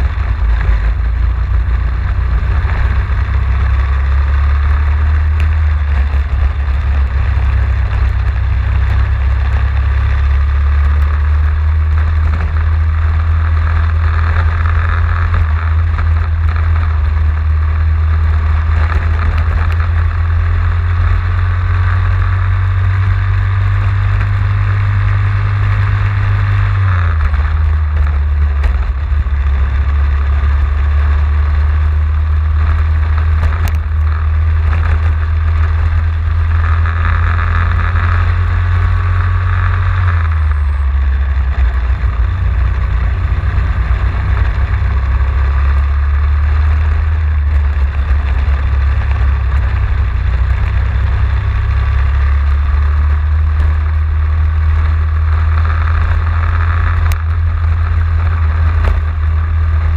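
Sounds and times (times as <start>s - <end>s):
kart engine running hard: 0.0s - 59.9s
road noise: 0.0s - 59.9s
wind noise: 0.0s - 59.9s.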